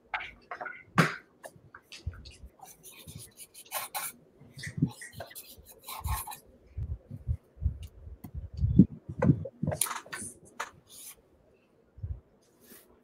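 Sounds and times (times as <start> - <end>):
pens scratching on paper: 2.0 - 6.4.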